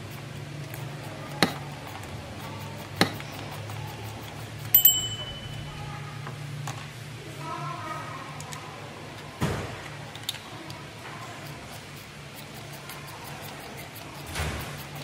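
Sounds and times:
low steady hum: 3.3s - 9.2s.

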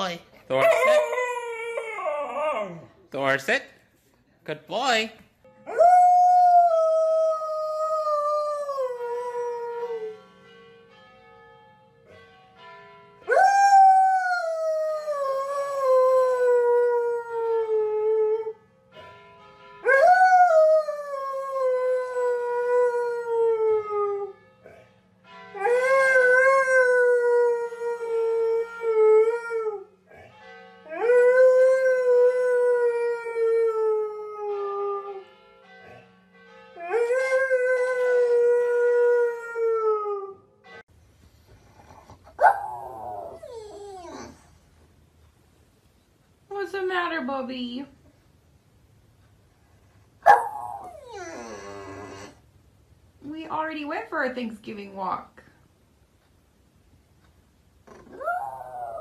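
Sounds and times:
husky howling: 50.3s - 52.4s.

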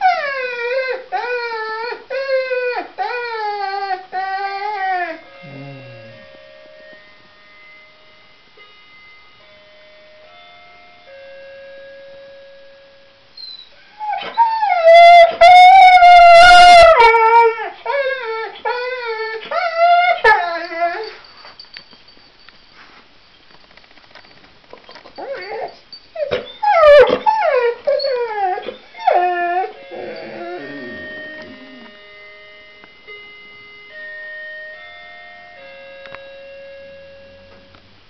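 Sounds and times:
dog howling: 4.3s - 6.4s, 25.2s - 31.9s
electronic door chime tune: 29.2s - 37.8s.

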